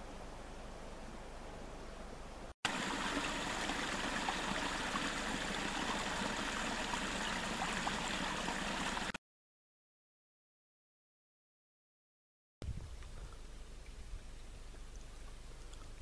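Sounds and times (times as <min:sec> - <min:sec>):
faint outdoor hiss: 0:00.0 - 0:09.1, 0:12.6 - 0:16.0
brook trickling and babbling: 0:02.7 - 0:09.2
small drips: 0:14.6 - 0:16.0.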